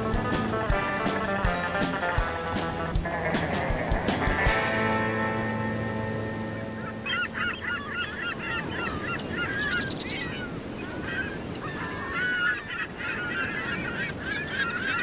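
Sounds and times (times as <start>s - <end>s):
low rush of surf: 0.0s - 11.8s
flock of birds calling: 0.0s - 15.0s.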